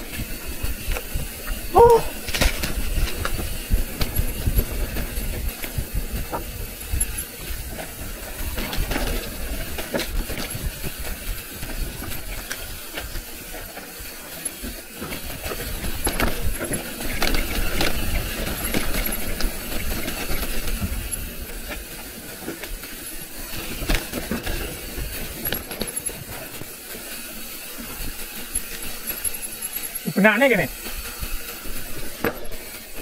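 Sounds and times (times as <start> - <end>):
wind buffeting microphone: 0.0 - 12.4
bike chain rattling and clicking: 0.0 - 33.0
bike tyres on dirt: 0.0 - 33.0.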